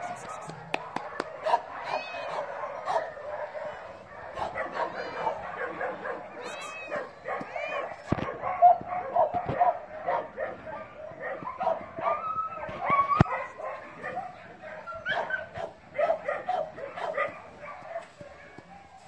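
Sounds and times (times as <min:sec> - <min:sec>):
dogs yipping and whining: 0:11.3 - 0:13.5, 0:14.8 - 0:15.7.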